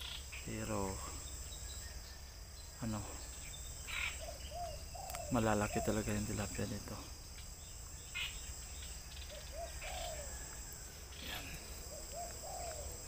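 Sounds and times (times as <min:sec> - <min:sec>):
insects trilling: 0:00.0 - 0:13.0
bird giving short low calls: 0:11.1 - 0:13.0.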